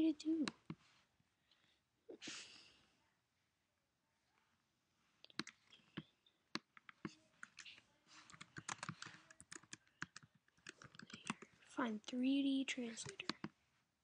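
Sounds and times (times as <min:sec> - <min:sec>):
computer keyboard typing: 0:05.3 - 0:11.6, 0:12.8 - 0:13.5.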